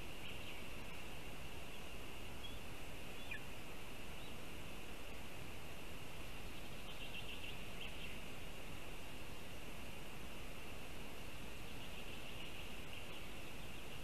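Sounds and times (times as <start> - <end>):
faint bird chirps: 0.0 - 5.3, 6.2 - 8.6, 11.2 - 14.0
steady hiss: 0.0 - 14.0.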